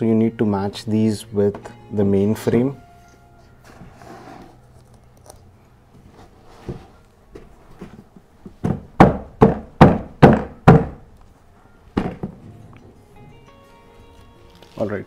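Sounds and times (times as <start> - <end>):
sharp knocks on wooden panel: 8.6 - 11.0.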